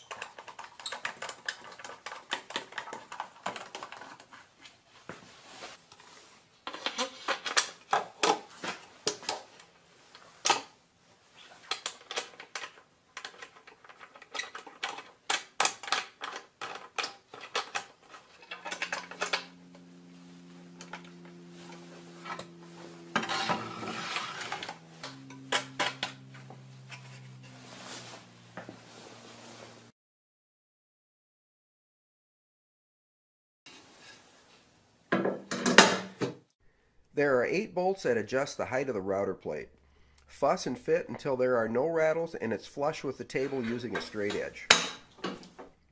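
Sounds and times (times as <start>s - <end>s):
clatter of parts being handled: 0.0s - 4.4s, 11.4s - 19.8s.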